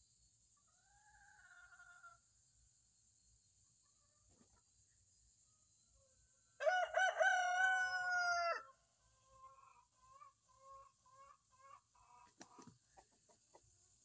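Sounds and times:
rooster crowing: 0:06.6 - 0:08.8.

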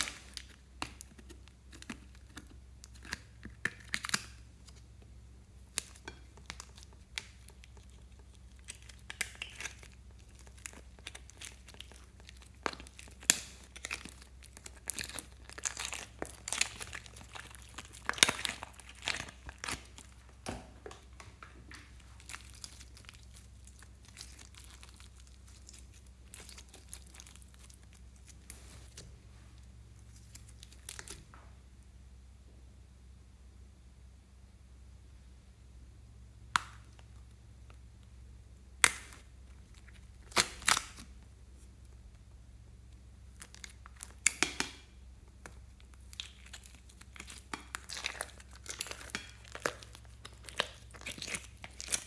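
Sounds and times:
slime peeling from plastic: 0:05.7 - 0:21.0, 0:21.7 - 0:29.0, 0:30.1 - 0:31.2, 0:38.9 - 0:41.1, 0:46.0 - 0:52.0
plastic container crinkling: 0:05.7 - 0:29.1, 0:46.0 - 0:52.0.

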